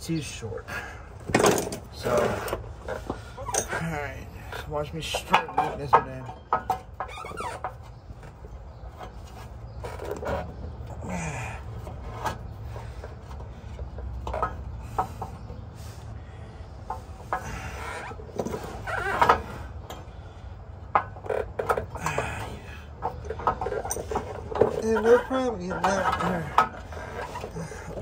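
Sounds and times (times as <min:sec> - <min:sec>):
light metal knocks and scrapes: 0:01.2 - 0:10.8.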